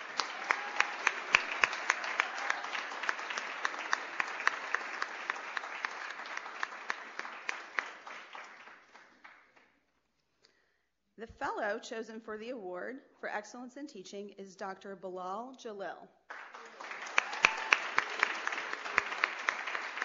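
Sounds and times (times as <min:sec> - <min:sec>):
audience applauding: 0:00.0 - 0:09.7, 0:16.3 - 0:20.0.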